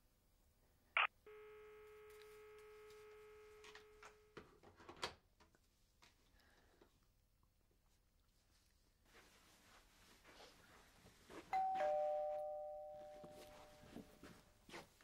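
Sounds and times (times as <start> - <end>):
telephone line tone: 1.3 - 4.2, 11.6 - 13.9.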